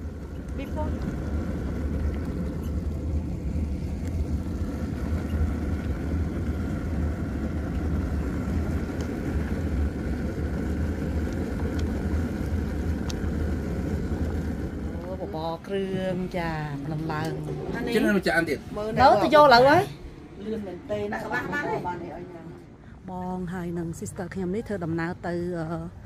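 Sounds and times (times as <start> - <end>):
soup boiling: 0.0 - 20.2
camp stove burner rumbling: 0.0 - 26.0.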